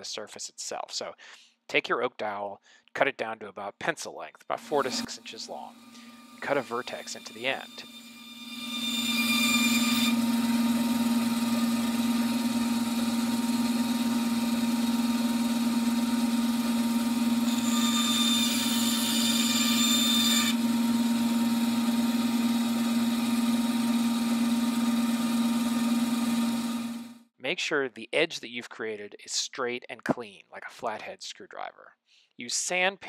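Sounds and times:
blade rasping through wood: 4.6s - 27.0s
bandsaw humming: 4.6s - 27.1s.

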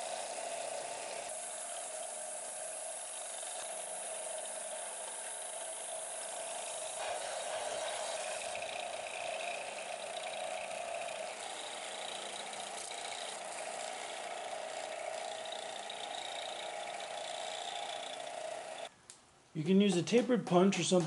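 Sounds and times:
small power tool grinding: 0.0s - 18.9s.

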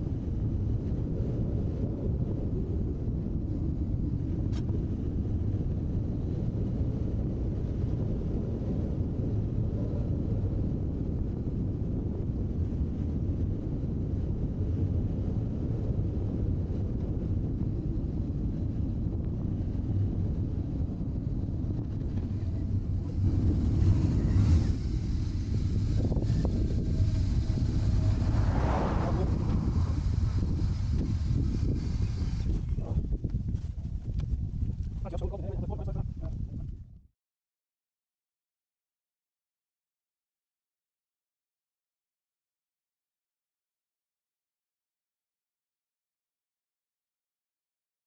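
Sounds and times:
wind buffeting microphone: 0.0s - 37.1s
motorcycle engine rumble: 17.5s - 34.4s.

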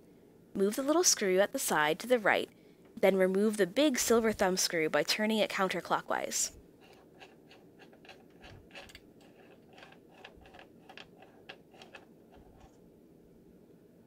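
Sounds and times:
small metallic clicks and scrapes: 6.8s - 12.8s.

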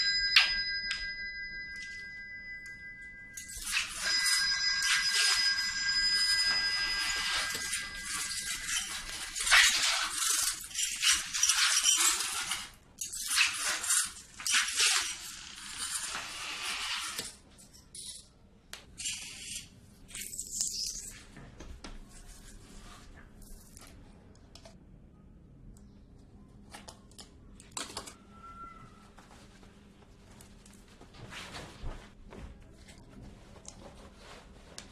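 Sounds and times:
glass shards scraping on tiles: 3.4s - 5.9s, 6.8s - 18.2s, 19.0s - 21.2s.

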